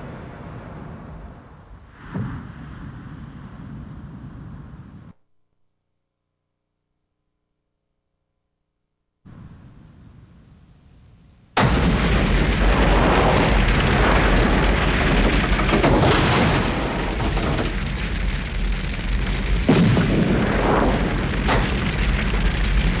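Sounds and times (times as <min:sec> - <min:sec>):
fire rumbling: 0:11.6 - 0:23.0
loud explosion blast: 0:11.6 - 0:23.0.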